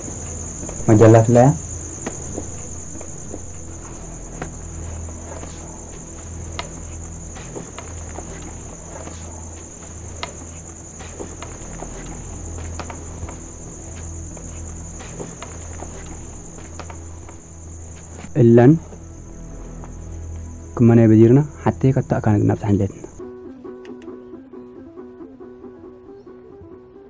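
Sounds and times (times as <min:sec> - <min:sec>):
low hum: 0:00.0 - 0:18.3
crickets trilling: 0:00.0 - 0:26.6
small sharp clicks: 0:23.8 - 0:24.2.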